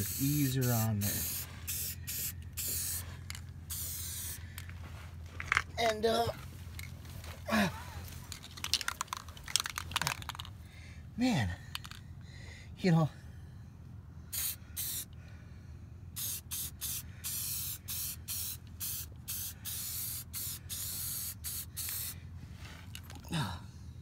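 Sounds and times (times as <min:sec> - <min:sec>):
spray paint can hissing: 0:00.0 - 0:03.1, 0:03.7 - 0:04.4, 0:14.3 - 0:15.1, 0:16.2 - 0:22.2.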